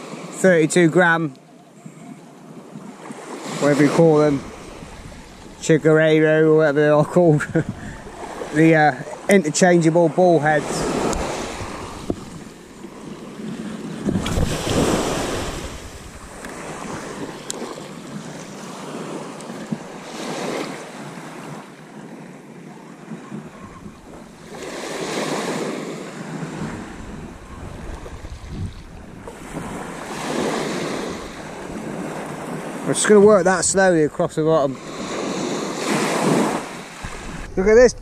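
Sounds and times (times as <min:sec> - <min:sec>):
small waves breaking on shore: 0:00.0 - 0:38.0
low rumble on microphone: 0:26.6 - 0:29.3, 0:37.0 - 0:38.0.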